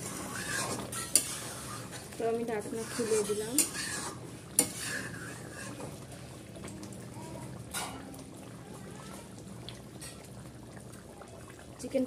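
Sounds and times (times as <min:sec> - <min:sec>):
spatula stirring liquid: 0:00.0 - 0:06.7, 0:09.0 - 0:12.0
gravy simmering: 0:00.0 - 0:12.0.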